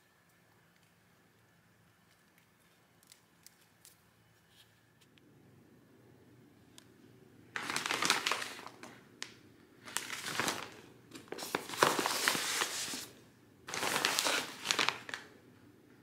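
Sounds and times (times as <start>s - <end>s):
shopping bags crinkling: 7.6s - 9.0s, 9.8s - 15.3s.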